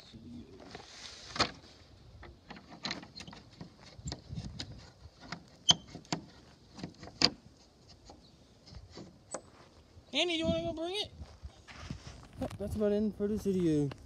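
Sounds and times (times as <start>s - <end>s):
footsteps on dry dirt and grass: 9.4s - 10.1s, 10.7s - 14.0s.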